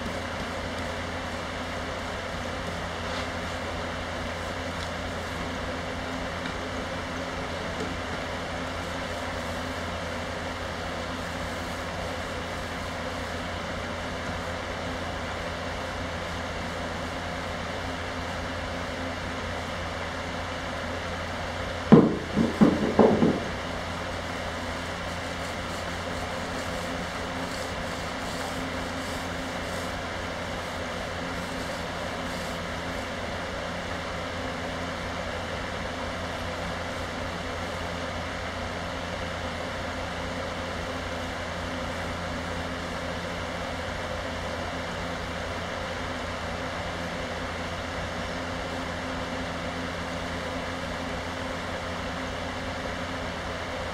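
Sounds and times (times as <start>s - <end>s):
electric fan running: 0.0s - 53.9s
quick knocks: 21.9s - 23.6s.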